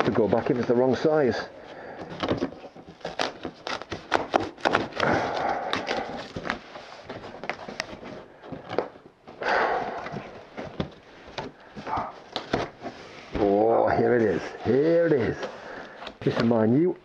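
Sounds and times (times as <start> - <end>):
cardboard knocks and scrapes: 2.0 - 5.1, 5.7 - 13.6
packing tape tearing: 2.2 - 6.8.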